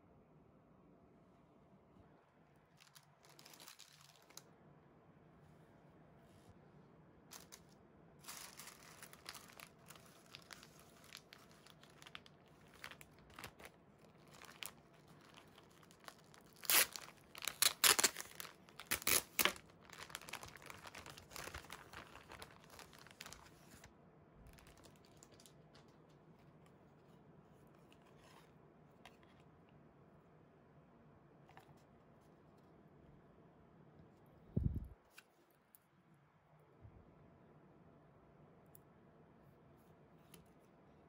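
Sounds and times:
plastic bag crackling and tearing: 2.8s - 4.4s, 7.3s - 7.6s, 8.2s - 23.9s, 24.5s - 26.0s
tissue paper rustling: 2.8s - 4.4s, 7.3s - 23.9s.

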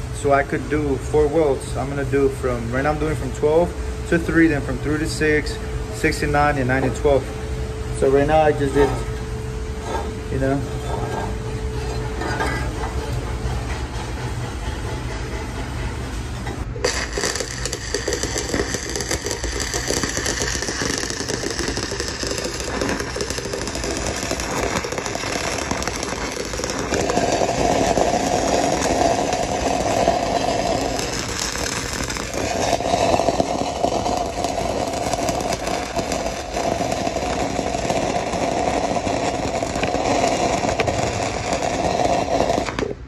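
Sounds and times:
low hum: 4.7s - 43.0s
welding arc crackling: 16.7s - 43.0s.

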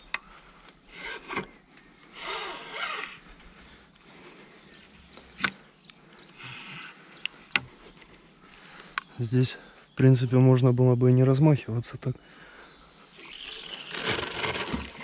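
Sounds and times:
fishing reel whirring: 13.1s - 15.0s
fishing reel clicks: 13.2s - 14.7s.

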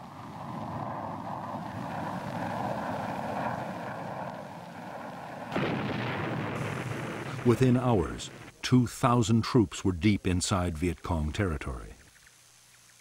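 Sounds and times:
jet engine rushing with whine: 0.0s - 8.5s
bomb explosion rumble: 5.4s - 8.5s.

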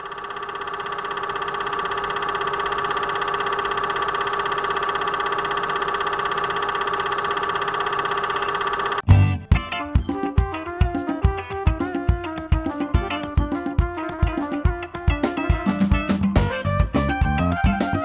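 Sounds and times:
film projector whirring and clattering: 0.0s - 9.1s.

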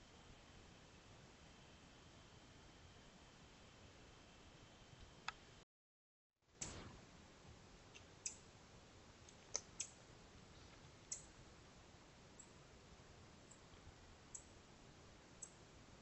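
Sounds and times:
microphone hiss: 6.5s - 16.0s
sharp clicks: 9.3s - 10.0s.

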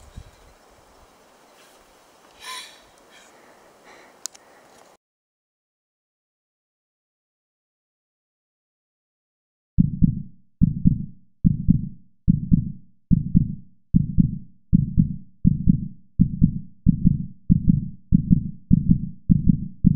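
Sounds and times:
heartbeat thumps: 9.8s - 19.9s.

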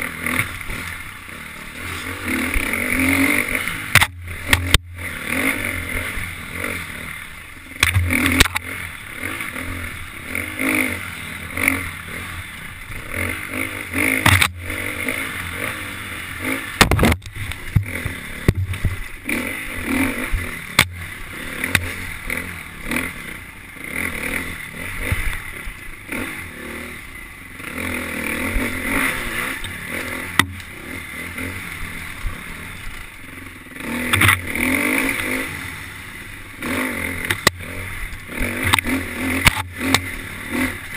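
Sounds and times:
dirt bike engine revving: 0.0s - 40.9s
bike knocking over rough ground: 16.8s - 19.0s.

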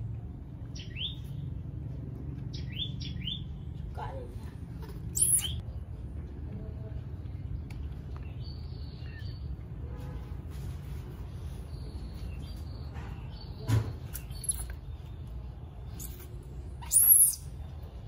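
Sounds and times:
low background rumble: 0.0s - 10.4s
baby monkeys squeaking and chirping: 5.0s - 5.6s, 14.1s - 14.8s, 15.9s - 17.7s
monkey squeal: 5.2s - 5.6s, 16.8s - 17.6s.

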